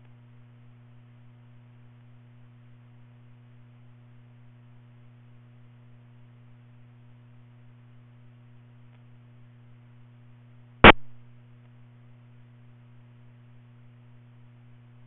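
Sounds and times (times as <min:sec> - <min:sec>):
low electrical hum with hiss: 0:00.0 - 0:15.0
sharp loud click: 0:10.8 - 0:11.2.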